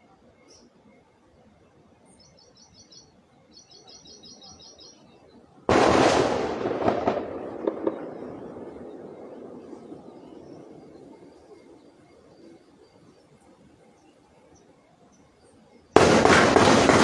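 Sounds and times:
bird chirping: 0:00.3 - 0:05.6, 0:07.3 - 0:16.0
loud gunshot with echo: 0:05.7 - 0:09.9, 0:16.0 - 0:17.0.

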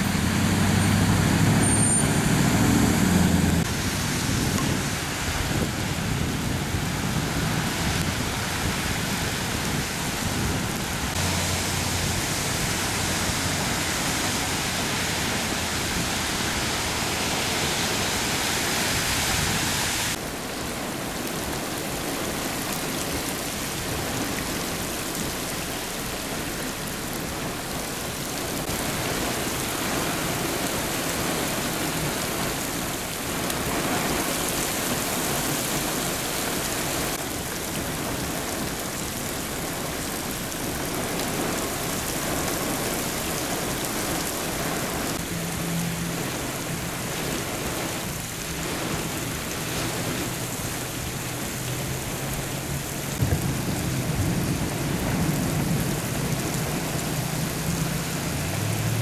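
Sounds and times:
vehicle engine hum: 0:00.0 - 0:08.8, 0:09.6 - 0:17.6, 0:43.5 - 0:59.0
heavy rain on water: 0:00.0 - 0:59.0.

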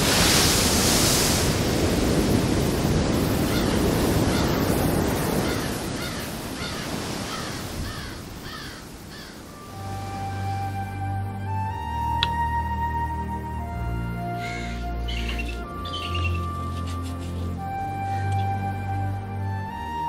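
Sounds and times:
surf breaking on beach: 0:00.0 - 0:07.8
bird short arched calls: 0:14.4 - 0:16.6.

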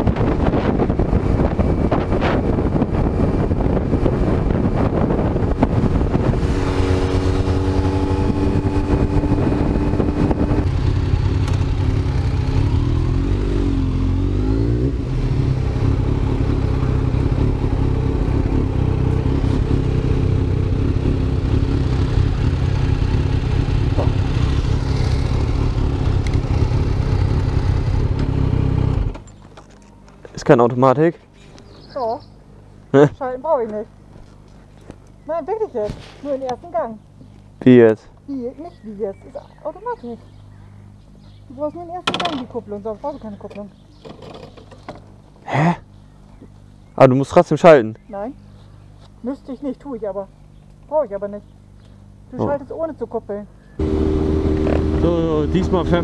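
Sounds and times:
wind rush noise: 0:00.0 - 0:13.0
motorcycle engine running: 0:00.0 - 0:29.4, 0:53.8 - 0:56.0.

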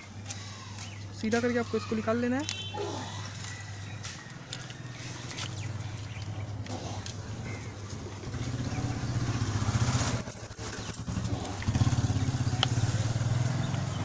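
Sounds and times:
vehicle engine running: 0:03.2 - 0:14.0.

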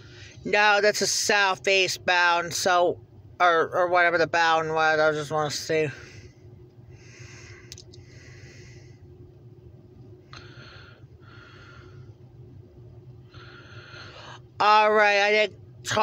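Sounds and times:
person breathing slowly: 0:06.0 - 0:09.1, 0:10.3 - 0:12.2, 0:13.2 - 0:14.4
faint clicks: 0:07.7 - 0:08.0
car cabin low hum: 0:09.1 - 0:16.0.

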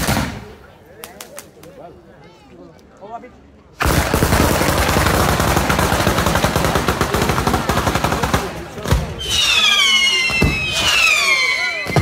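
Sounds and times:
whistling fireworks: 0:08.9 - 0:12.0.

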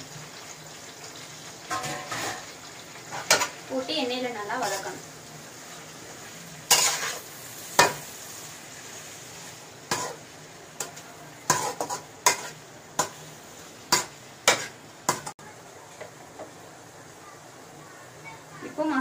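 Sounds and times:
food sizzling in oil: 0:00.0 - 0:19.0
metal spatula scraping pan: 0:01.7 - 0:02.5, 0:03.1 - 0:03.6, 0:06.7 - 0:08.1, 0:09.9 - 0:10.2, 0:11.5 - 0:13.2, 0:13.9 - 0:15.3.

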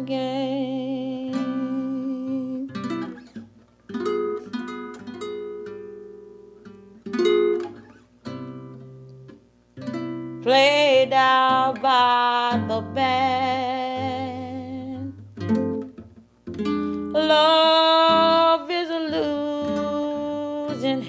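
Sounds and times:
person singing with vibrato: 0:00.0 - 0:02.8, 0:10.5 - 0:15.2, 0:17.1 - 0:21.0
acoustic guitar plucked chords: 0:00.0 - 0:21.0.

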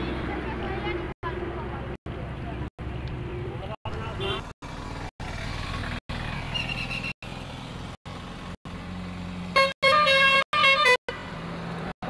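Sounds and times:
vehicle horn honking: 0:04.2 - 0:04.5, 0:09.6 - 0:11.0.

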